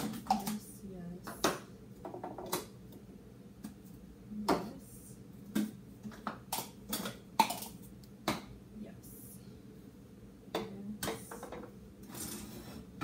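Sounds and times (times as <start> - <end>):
plastic cups clattering: 0.0 - 0.7, 5.4 - 8.5.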